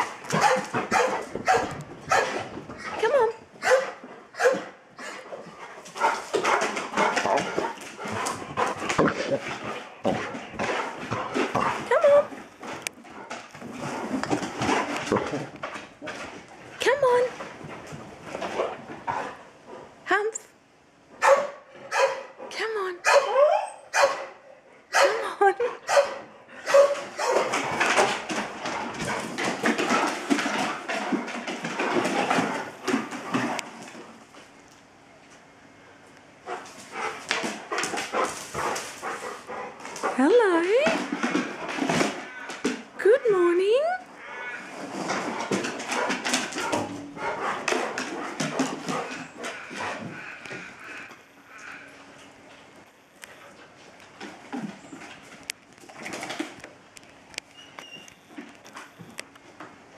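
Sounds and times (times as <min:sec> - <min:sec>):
dog barking and yelping: 0:00.0 - 0:02.4, 0:03.6 - 0:05.3, 0:21.2 - 0:22.4, 0:23.0 - 0:27.5
dog excited vocal sounds: 0:00.0 - 0:05.3.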